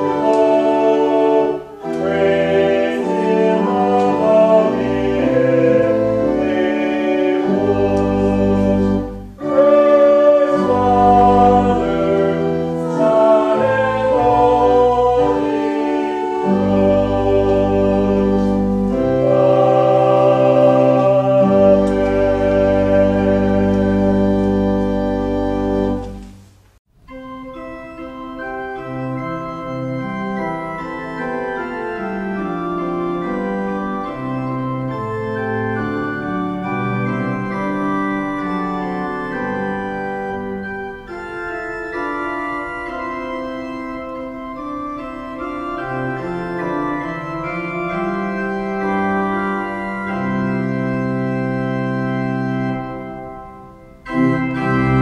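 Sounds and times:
organ chord: 0.0s - 26.4s, 27.0s - 55.0s
organ piece: 0.0s - 55.0s.

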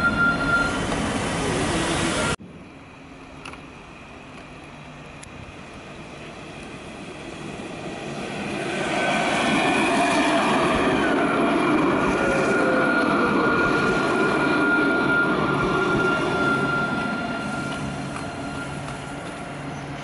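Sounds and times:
tram high whine: 0.0s - 20.0s
tram rolling rumble: 0.0s - 20.0s.

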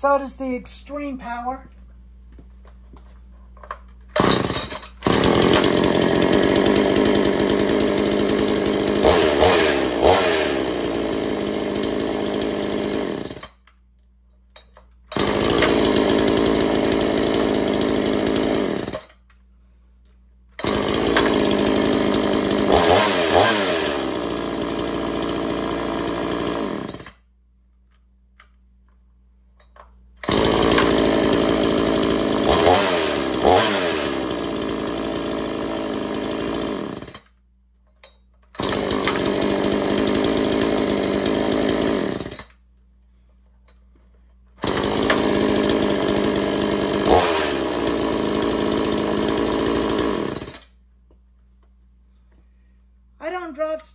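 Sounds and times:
chainsaw running and revving: 4.2s - 13.6s, 15.1s - 19.1s, 20.6s - 27.2s, 30.2s - 37.2s, 38.6s - 42.5s, 44.6s - 50.7s.

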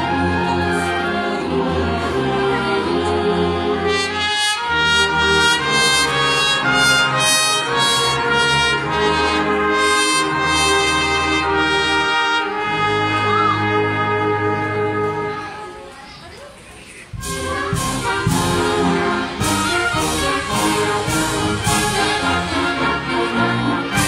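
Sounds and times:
trumpet solo: 0.0s - 15.8s, 17.2s - 24.0s
brass band playing: 0.0s - 16.0s, 17.1s - 24.0s.

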